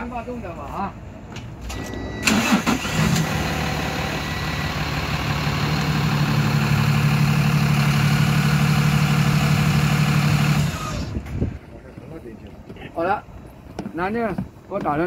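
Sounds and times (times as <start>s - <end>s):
engine clatter: 2.3s - 11.4s
heavy vehicle engine humming: 2.3s - 13.7s.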